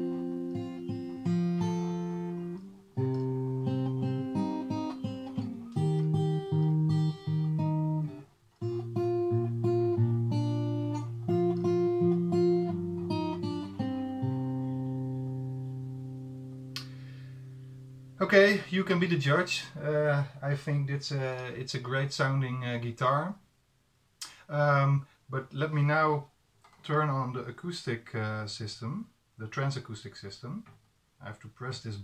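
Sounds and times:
fingerpicked acoustic guitar: 0:00.0 - 0:18.5.

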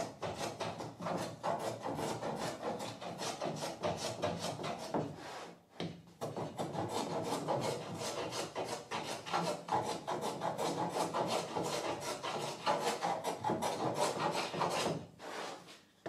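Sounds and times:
hand plane scraping wood: 0:00.0 - 0:15.8.

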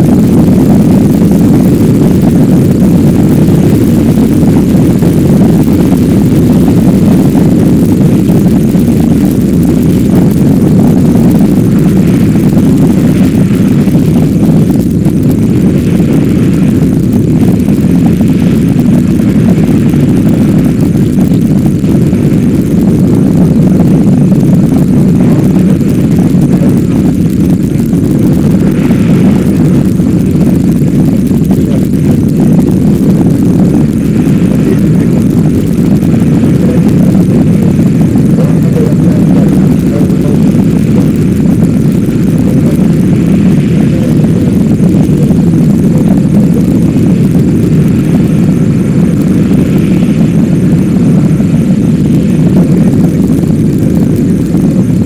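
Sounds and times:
rocket engines rumbling: 0:00.0 - 0:55.0.

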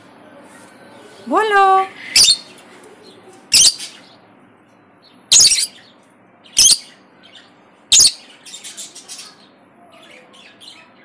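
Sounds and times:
lovebirds giving shrill calls: 0:02.1 - 0:02.5, 0:03.5 - 0:04.0, 0:05.3 - 0:05.8, 0:06.6 - 0:07.0, 0:07.9 - 0:08.6.

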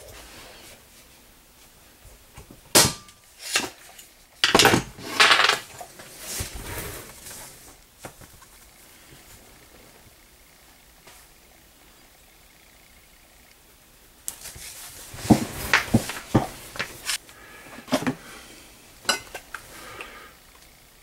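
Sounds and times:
clamps clattering on workbench: 0:04.4 - 0:05.8.

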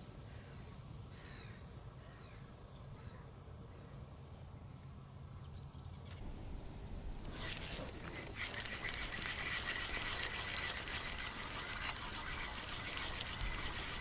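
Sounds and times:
outdoor background noise: 0:00.0 - 0:14.0
fishing reel whining and ticking: 0:06.2 - 0:14.0.

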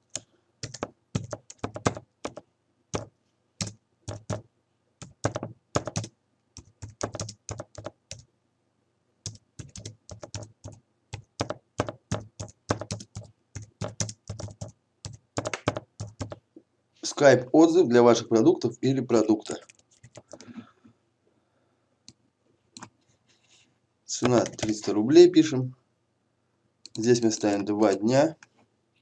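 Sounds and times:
typing on computer keyboard: 0:00.0 - 0:02.4, 0:03.0 - 0:04.4, 0:05.0 - 0:08.2, 0:09.2 - 0:16.4, 0:19.5 - 0:20.5, 0:24.2 - 0:24.8.

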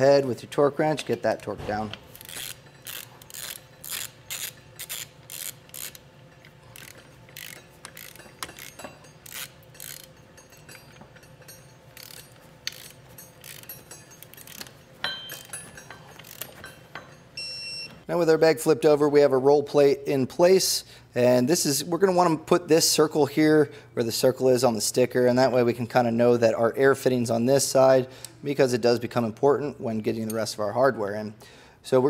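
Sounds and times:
torque wrench ratchet clicking: 0:02.1 - 0:16.6.

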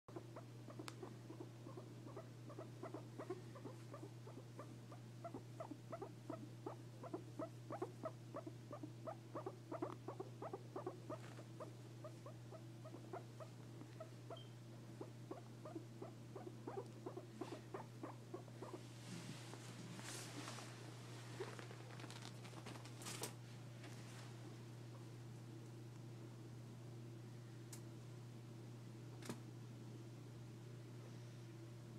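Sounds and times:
guinea pig calling: 0:00.1 - 0:18.8
soft rustle: 0:18.8 - 0:24.5.

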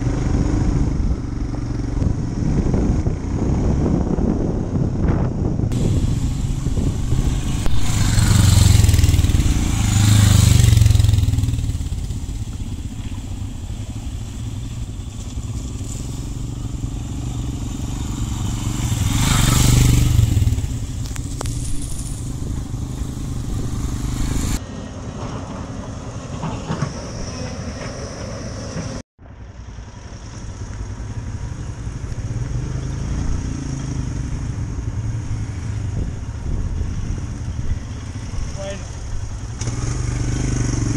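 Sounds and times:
motorcycles passing: 0:00.0 - 0:40.9
motorcycle engine running slowly: 0:05.1 - 0:24.6, 0:29.2 - 0:35.0.

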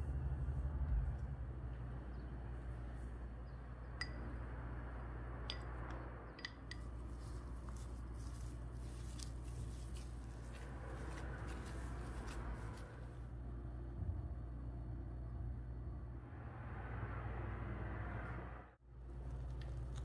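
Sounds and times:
low hum: 0:00.0 - 0:20.0
wooden spoon clinking on bowls: 0:06.4 - 0:06.9
squishing food being mixed: 0:06.6 - 0:13.2, 0:19.1 - 0:20.0.

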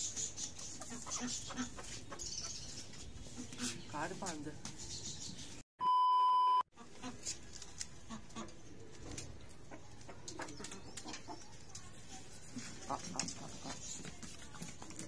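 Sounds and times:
chickens clucking: 0:00.0 - 0:04.3, 0:06.8 - 0:15.0
chickens pecking clicks: 0:07.2 - 0:15.0.

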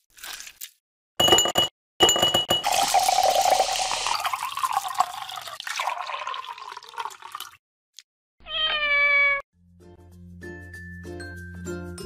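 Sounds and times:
soda pouring over ice: 0:02.6 - 0:07.6
cat meowing: 0:08.4 - 0:09.4.

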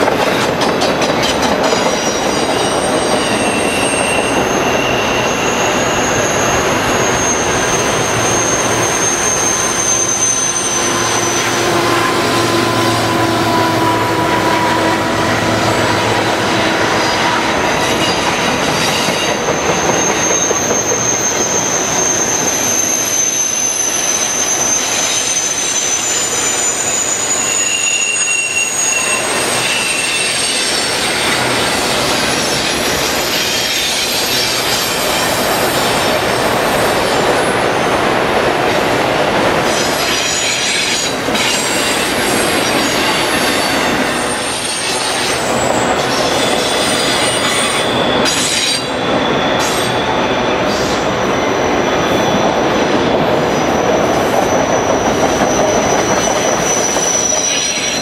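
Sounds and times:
train wheels rumbling on rail: 0:00.0 - 0:58.0
high-pitched wheel squeal: 0:01.6 - 0:37.9, 0:39.6 - 0:58.0.

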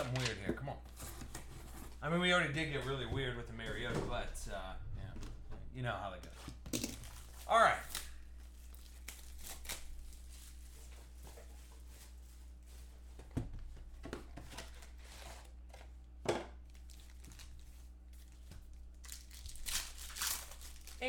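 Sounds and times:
faint low hum: 0:00.0 - 0:21.0
foil packs crinkling: 0:06.9 - 0:12.7, 0:16.7 - 0:21.0.

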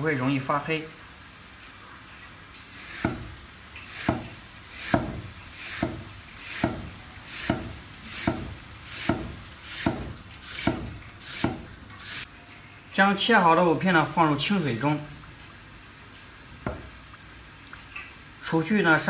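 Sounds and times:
cleaver slicing root: 0:03.9 - 0:12.3.

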